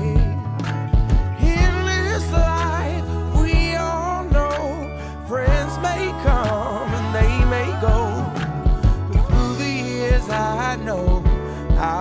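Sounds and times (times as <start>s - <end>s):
person singing: 0.0s - 0.5s, 1.4s - 12.0s
kick drum beat: 0.0s - 2.8s, 3.4s - 4.5s, 5.5s - 6.6s, 7.2s - 10.3s, 11.1s - 12.0s
bass: 0.0s - 12.0s.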